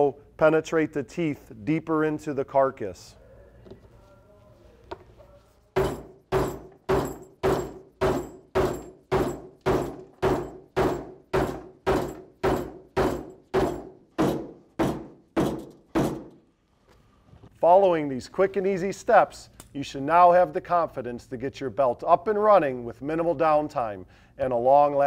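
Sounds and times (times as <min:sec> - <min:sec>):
hammer striking metal: 0:05.8 - 0:16.4.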